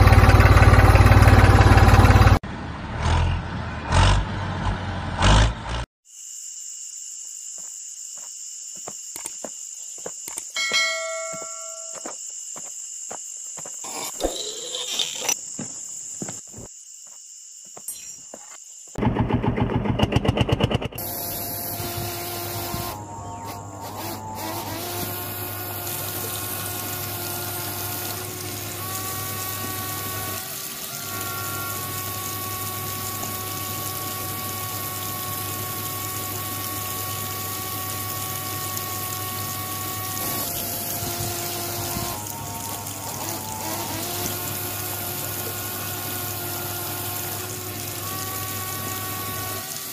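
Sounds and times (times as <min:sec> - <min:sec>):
toy water pump humming: 0:21.0 - 0:49.9.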